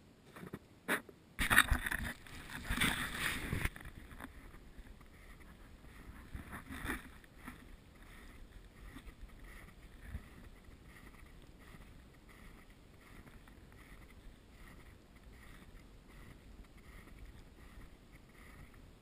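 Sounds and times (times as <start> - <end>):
footsteps crunching in snow: 1.4 - 4.7.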